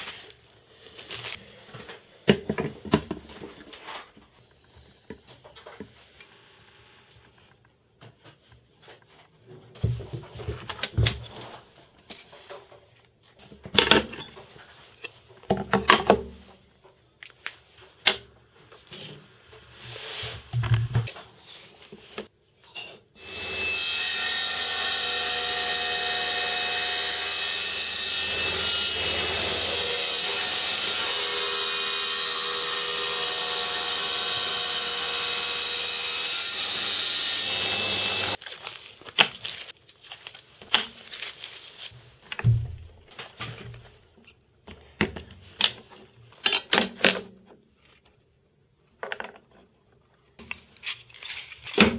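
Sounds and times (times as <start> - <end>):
table saw cutting acrylic: 23.2 - 38.4.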